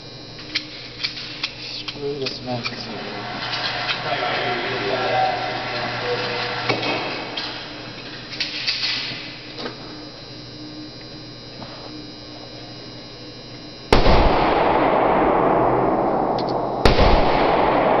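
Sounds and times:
gunshots: 2.9s - 9.0s, 13.9s - 18.0s.

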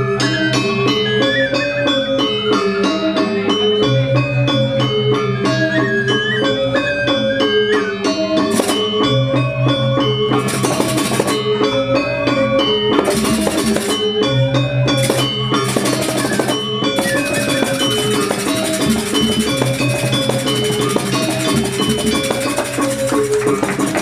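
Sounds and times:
metallophones playing melody: 0.7s - 24.0s
drums: 4.2s - 24.0s
cymbals clashing: 8.5s - 9.4s, 10.2s - 12.0s, 12.6s - 24.0s.

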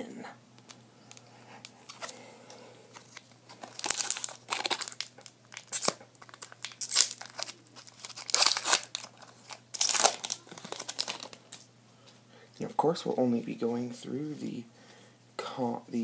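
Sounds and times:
foil wrapper crinkling: 2.9s - 11.7s.

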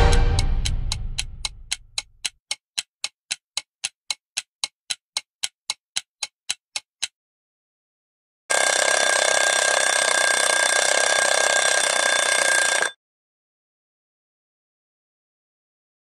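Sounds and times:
intro music: 0.0s - 2.0s
clock ticking sound effect: 0.0s - 7.2s, 8.5s - 13.0s.

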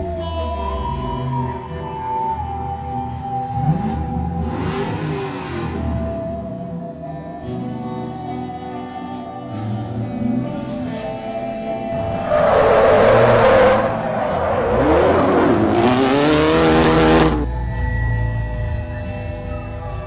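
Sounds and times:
background music with sustained tones: 0.0s - 20.0s
car tyres screeching: 12.0s - 17.5s.

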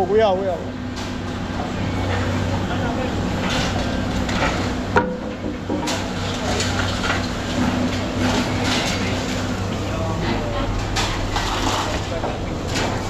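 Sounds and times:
steady machine hum: 0.0s - 13.0s
metal clanking and scraping: 3.4s - 13.0s.

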